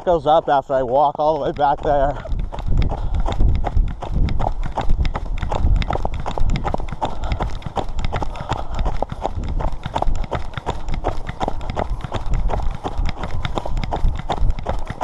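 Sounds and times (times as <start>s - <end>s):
footsteps in snow: 0.0s - 5.0s.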